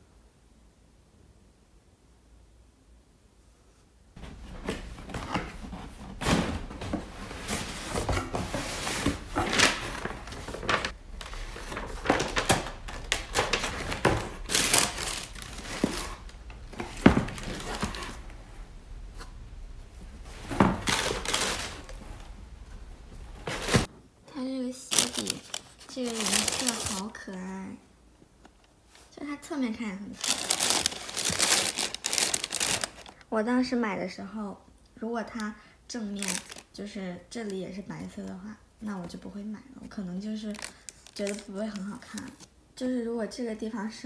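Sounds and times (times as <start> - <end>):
tissue paper rustling: 4.2 - 18.2, 20.2 - 22.2, 23.3 - 23.9, 24.8 - 27.4, 30.2 - 33.2, 36.2 - 36.6, 40.4 - 42.5.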